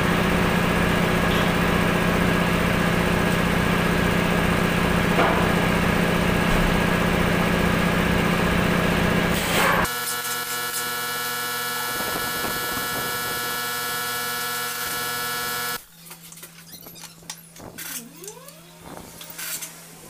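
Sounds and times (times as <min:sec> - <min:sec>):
machine droning: 0:00.0 - 0:15.9
brief squeak: 0:16.6 - 0:18.6.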